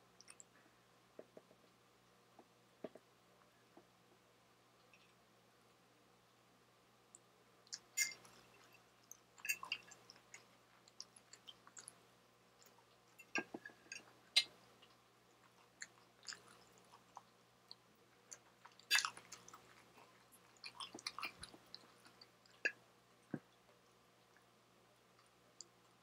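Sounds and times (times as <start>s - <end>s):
chewing and wet mouth sounds: 0.2s - 0.6s, 7.1s - 26.0s.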